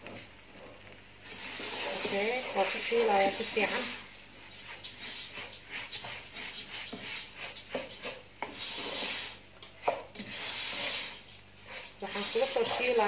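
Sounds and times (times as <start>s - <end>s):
rice rustling and scraping: 0.0s - 13.0s.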